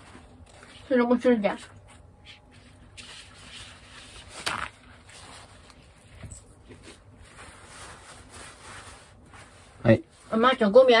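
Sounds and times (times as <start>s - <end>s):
rustling handling noises: 0.0s - 11.0s.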